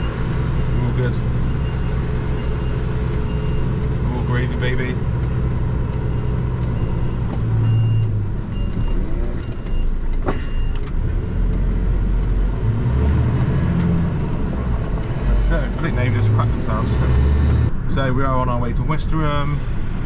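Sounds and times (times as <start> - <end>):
diesel engine running: 0.0 - 20.0
reversing alarm beeps: 6.1 - 10.8.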